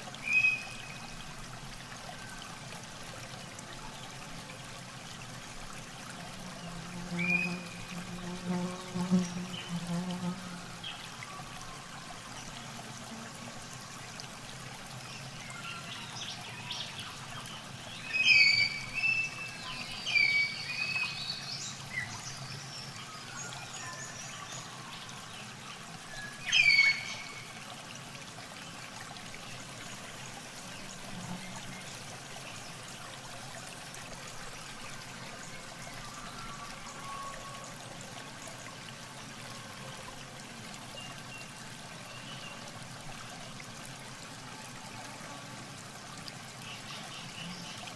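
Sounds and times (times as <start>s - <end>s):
water trickling and dripping: 0.0s - 47.9s.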